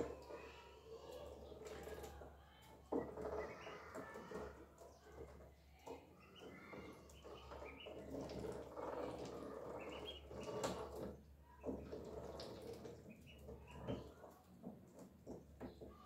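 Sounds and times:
ducklings peeping: 1.3 - 15.9.

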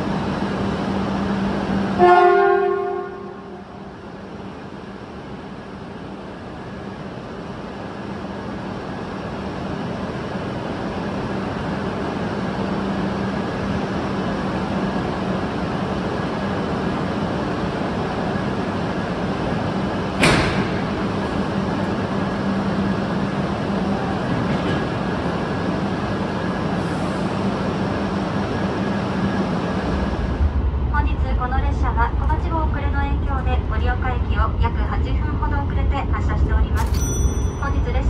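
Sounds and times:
train hum and running noise: 0.0 - 38.0
sharp clunk of couplers engaging: 20.2 - 20.8.

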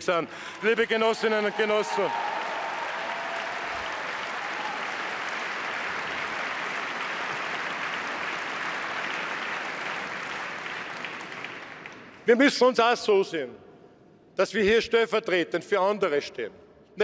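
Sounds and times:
large audience applauding: 0.3 - 12.2.

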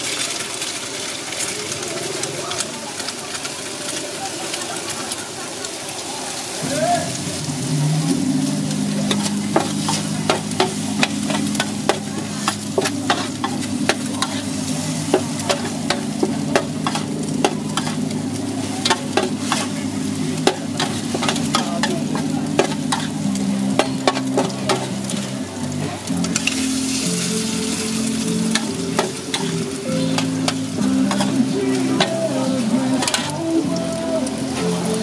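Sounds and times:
food sizzling: 0.0 - 35.0
metal spatula clanking on wok: 8.8 - 25.4, 26.2 - 26.7, 27.4 - 32.2.

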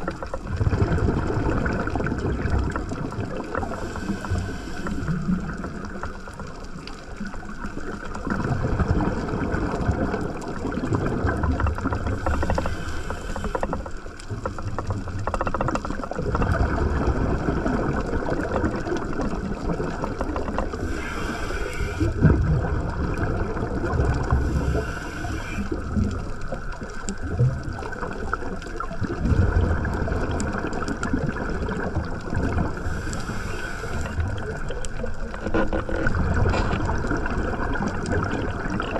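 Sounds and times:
underwater bubbles gurgling: 0.0 - 38.9
regulator inhalation hiss: 3.7 - 5.2, 12.2 - 13.8, 20.8 - 22.1, 24.4 - 25.8, 32.8 - 34.2.

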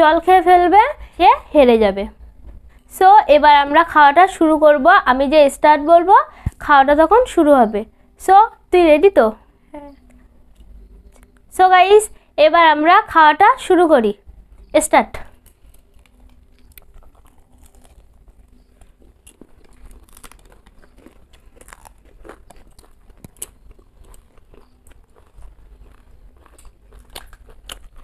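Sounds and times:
crunchy snacks being chewed: 15.3 - 28.0.

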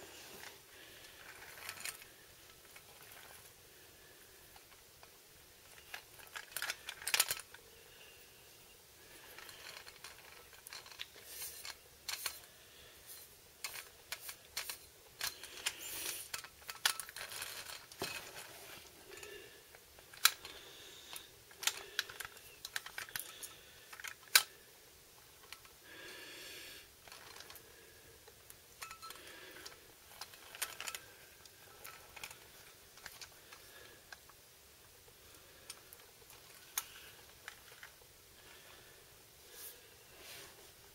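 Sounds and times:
toy wheels rolling on hard floor: 1.1 - 3.5, 9.2 - 12.5, 13.2 - 19.4, 28.8 - 33.9.

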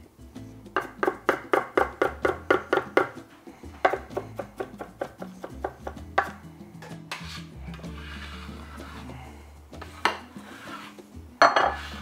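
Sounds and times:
knife chopping on wooden board: 0.8 - 3.2, 3.8 - 6.4.

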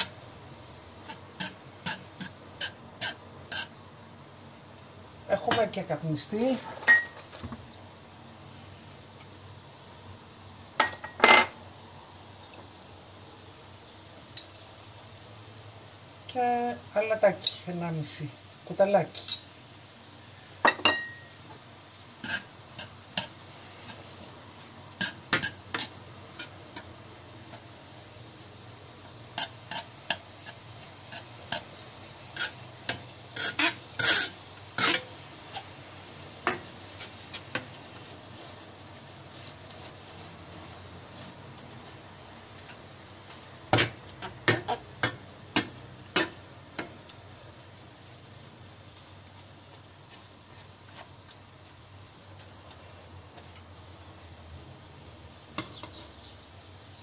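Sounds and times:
meat sizzling: 0.0 - 57.0
metal masher scraping frying pan: 1.0 - 3.8, 22.2 - 24.1, 25.0 - 26.9, 29.3 - 35.7.

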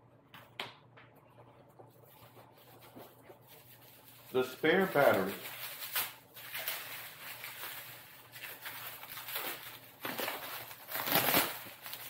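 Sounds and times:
packaging wrap rustling: 2.2 - 12.0.

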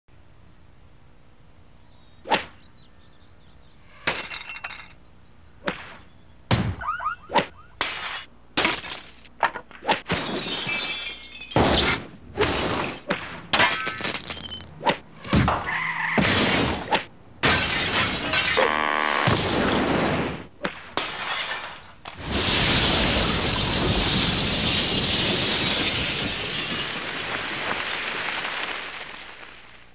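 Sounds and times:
glass shattering: 4.0 - 5.0, 7.8 - 9.3, 10.1 - 14.7, 15.3 - 18.6, 21.0 - 29.2.

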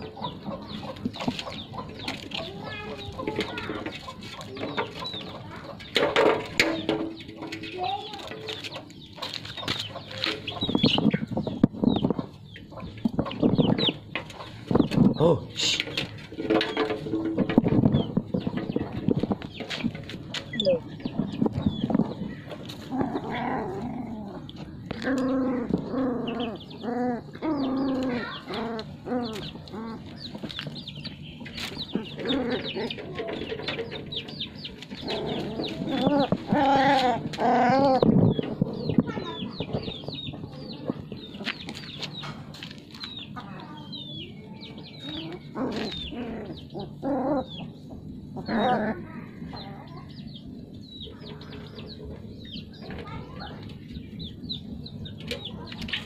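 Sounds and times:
hen clucking: 0.0 - 56.0
puppies whining and yipping: 20.4 - 42.4, 44.6 - 52.7.

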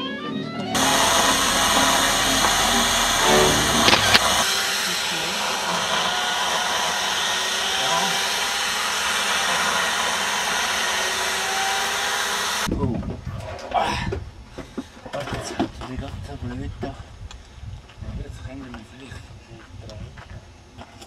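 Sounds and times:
whooshing power tool: 0.8 - 12.7.

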